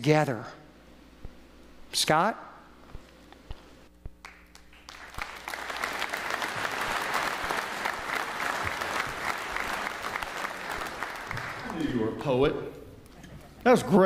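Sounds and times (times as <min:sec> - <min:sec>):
audience applauding: 0:04.2 - 0:12.2.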